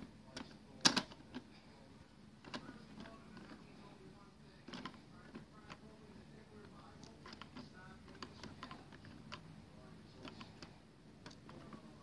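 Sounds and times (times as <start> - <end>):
plastic toy clicks and rattles: 0.4 - 1.4.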